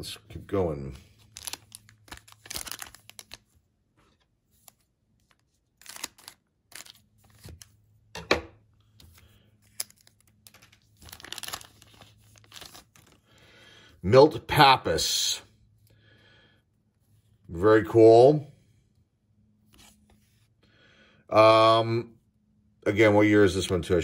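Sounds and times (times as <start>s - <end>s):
foil wrapper crinkling and ripping: 1.2s - 3.5s, 5.2s - 7.6s, 9.3s - 13.3s.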